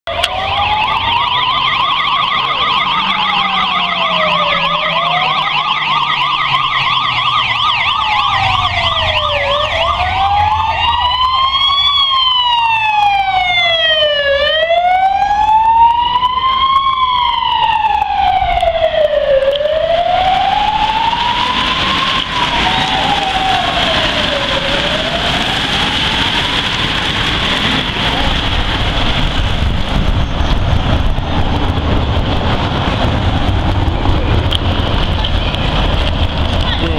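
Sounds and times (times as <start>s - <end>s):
police siren warbling fast: 0.1s - 26.7s
police siren wailing: 0.1s - 36.9s.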